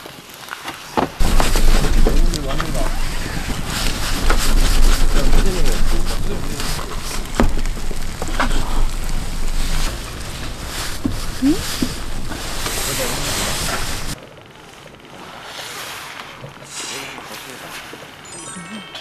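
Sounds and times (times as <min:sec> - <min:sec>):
wind buffeting microphone: 0:01.2 - 0:14.2.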